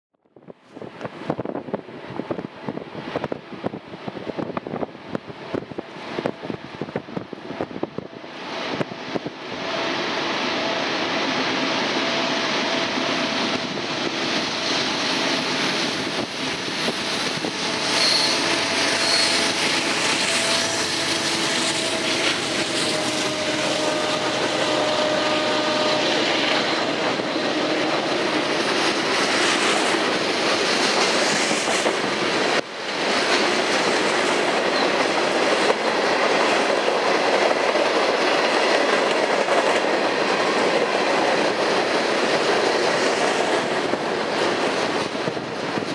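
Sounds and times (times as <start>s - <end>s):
diesel locomotives passing: 0.7s - 45.9s
train wheels clattering on rails: 10.6s - 45.9s.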